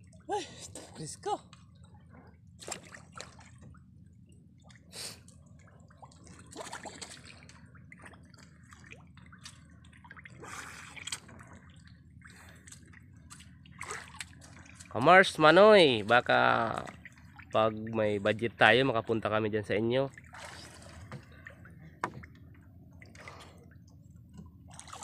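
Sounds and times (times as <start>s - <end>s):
water splashes and drips: 0.0s - 18.4s, 20.0s - 25.0s
low steady rumble: 0.0s - 25.0s.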